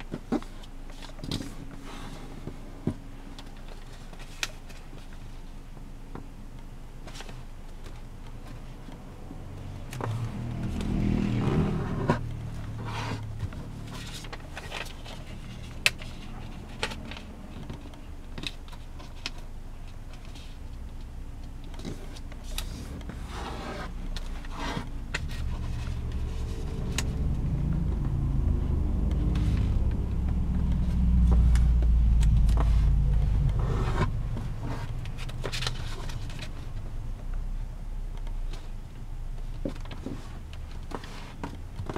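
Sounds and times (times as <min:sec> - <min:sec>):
paper being folded and creased: 0:09.9 - 0:20.6, 0:21.6 - 0:37.0
low rumble: 0:22.6 - 0:37.8.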